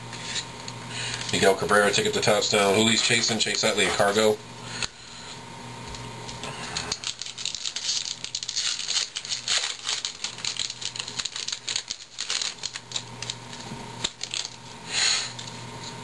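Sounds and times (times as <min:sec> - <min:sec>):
wrapper tearing and crinkling: 0:06.7 - 0:15.5.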